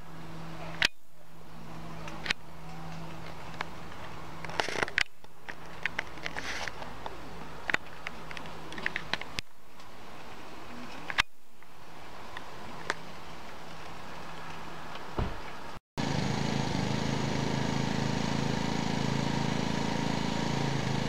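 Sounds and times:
camera handling clicks and rustles: 4.4 - 6.9.

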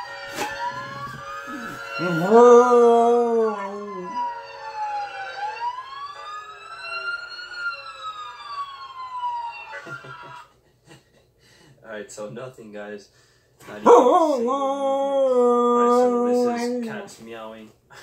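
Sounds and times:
police siren wailing: 0.0 - 10.5, 13.9 - 17.1
husky howling: 1.4 - 4.2, 13.8 - 17.0.

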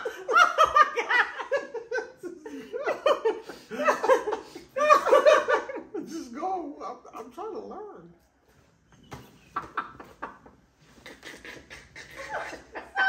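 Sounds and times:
man laughing: 9.6 - 13.0
woman laughing: 9.6 - 13.0.

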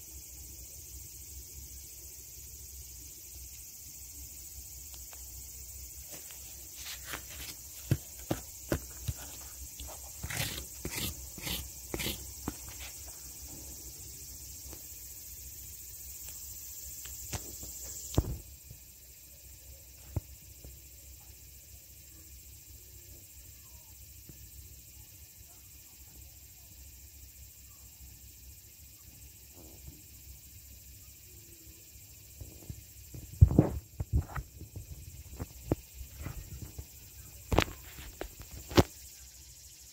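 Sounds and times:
faint outdoor hiss: 0.0 - 39.9
insects droning: 0.0 - 39.9.

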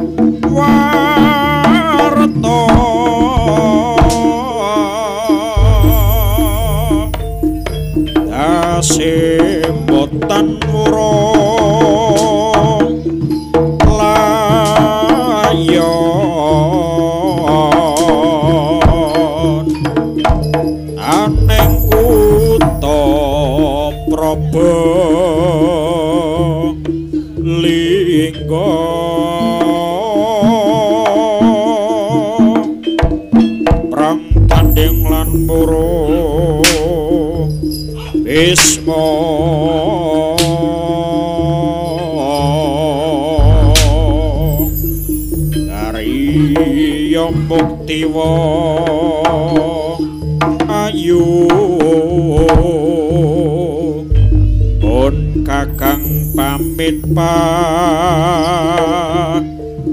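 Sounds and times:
sharp drum strokes: 0.0 - 16.0, 17.7 - 25.5, 33.0 - 39.0, 43.4 - 47.9, 54.1 - 57.8
hand drums: 0.0 - 59.9
gongs: 0.5 - 27.5, 34.3 - 48.4, 54.0 - 59.3
wavering melody line: 0.6 - 32.9, 33.8 - 59.9
steady low bass: 5.6 - 10.9, 21.2 - 27.1, 34.3 - 40.1, 43.4 - 47.5, 54.1 - 58.5.

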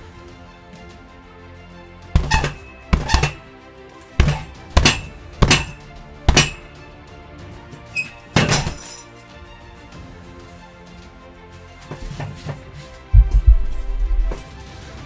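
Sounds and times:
background music: 0.0 - 15.0
fists thudding into punching bag: 2.2 - 3.4, 4.2 - 6.6
sharp crash with ringing: 4.2 - 6.6.

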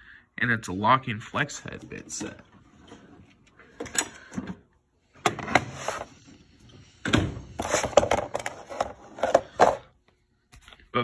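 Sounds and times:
knocks and scrapes: 5.3 - 6.3, 7.3 - 9.9.

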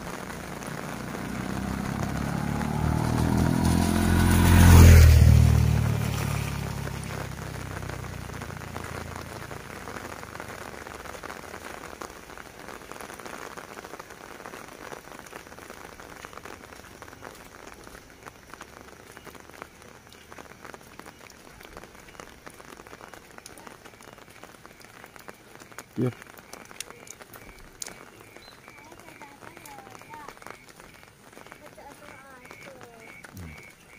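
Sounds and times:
steady rain falling: 0.0 - 33.9.

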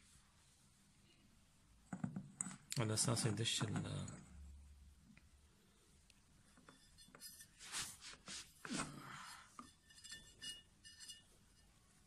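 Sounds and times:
metal scraping on tile: 6.5 - 11.8.

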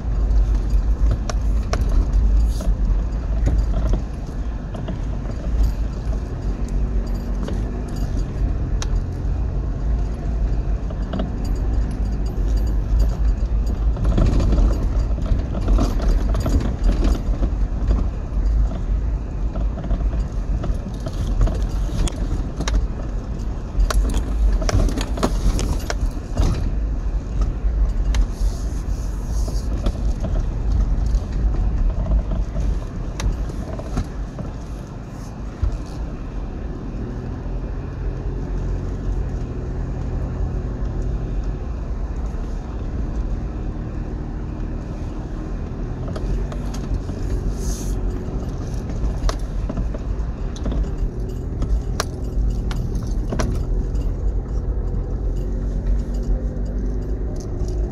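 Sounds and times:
loose objects rattling in cabin: 0.0 - 36.1, 44.8 - 57.9
car engine and tyres rumbling: 0.0 - 57.9.

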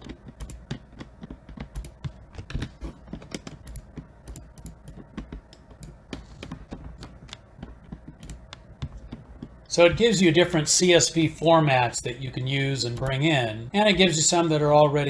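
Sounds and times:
keyboard and mouse clicking: 0.0 - 9.6.

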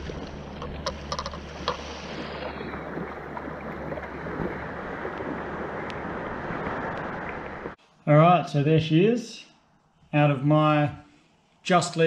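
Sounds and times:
surf washing around kayak hull: 0.0 - 7.8
wind buffeting microphone: 0.0 - 7.8.

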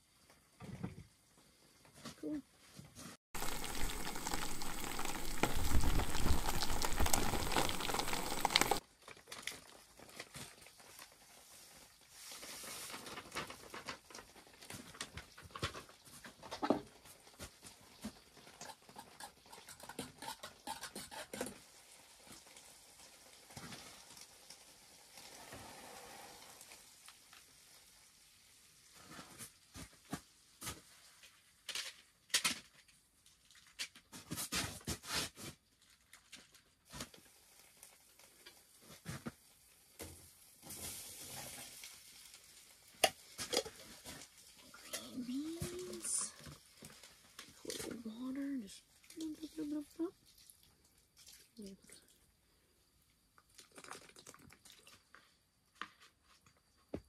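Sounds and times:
food sizzling in a pan: 3.4 - 8.8, 20.9 - 29.2, 37.1 - 47.7.

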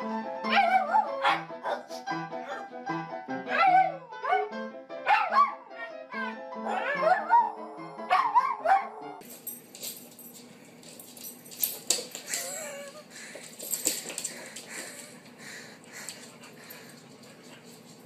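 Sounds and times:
piano notes: 0.0 - 9.3
dogs howling: 5.2 - 9.2
dog claws clicking on wood: 9.3 - 12.7.

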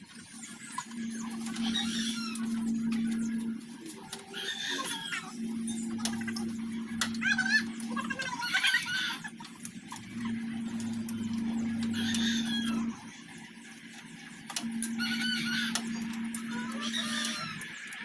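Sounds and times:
steady low hum: 0.2 - 18.0
rooster crowing: 4.3 - 9.3, 10.6 - 13.0, 14.9 - 17.6.

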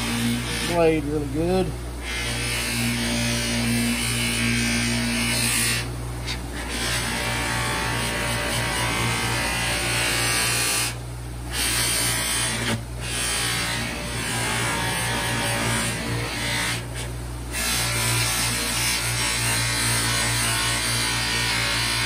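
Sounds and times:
buffer motor humming: 0.0 - 17.5.

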